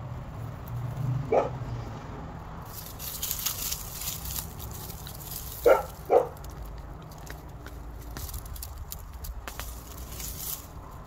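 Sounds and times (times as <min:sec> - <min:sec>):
dog barking: 0:01.3 - 0:01.6, 0:05.6 - 0:06.4
hands digging through mulch: 0:02.7 - 0:11.0.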